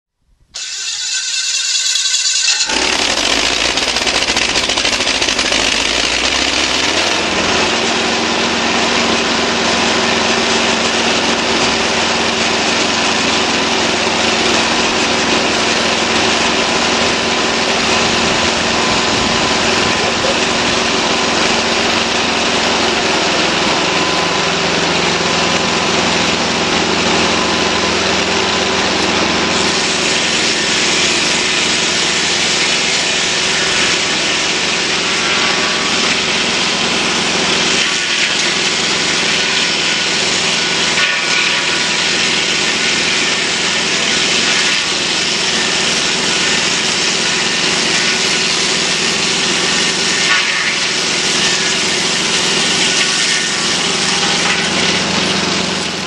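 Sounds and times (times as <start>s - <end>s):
sawmill engine drone: 0.5s - 56.0s
saw blade hissing through wood: 0.6s - 7.2s.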